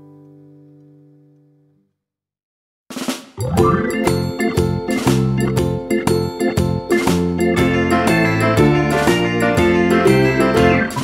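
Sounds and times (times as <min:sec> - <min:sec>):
gentle instrumental children's tune: 0:03.4 - 0:11.0.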